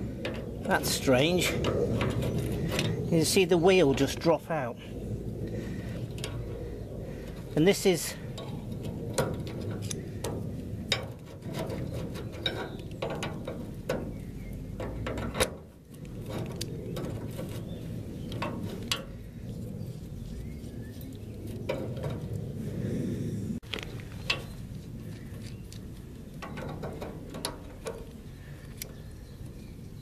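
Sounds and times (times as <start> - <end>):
metal tools clicking and scraping: 5.8 - 17.7.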